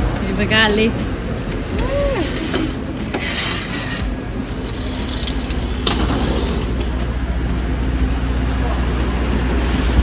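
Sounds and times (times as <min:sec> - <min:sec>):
bus engine humming: 0:00.0 - 0:10.0
mechanical clicks and rattles: 0:04.5 - 0:06.9.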